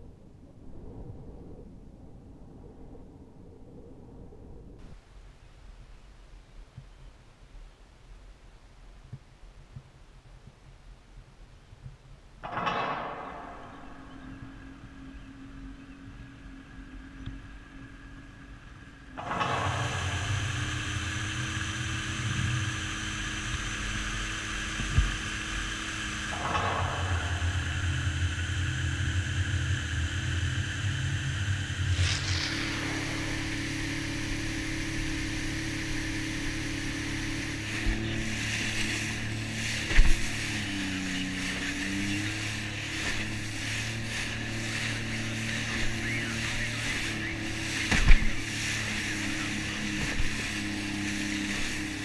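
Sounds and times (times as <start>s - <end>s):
jet ski engine: 12.4s - 52.0s.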